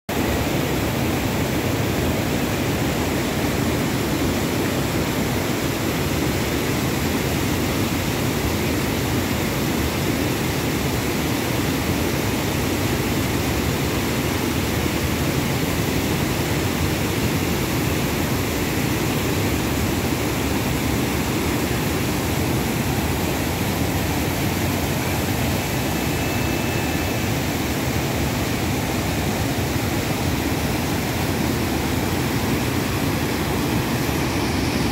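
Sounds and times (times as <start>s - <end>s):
water rushing over weir and rocks: 0.1s - 34.9s.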